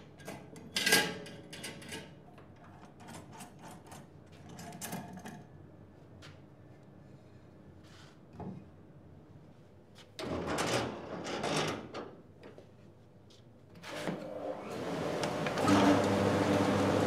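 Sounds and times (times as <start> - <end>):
drum sander running: 14.6 - 17.0.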